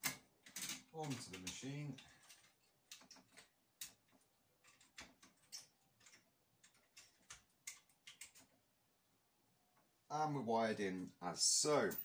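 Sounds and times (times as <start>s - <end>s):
faint clicks and light knocks: 0.0s - 8.6s.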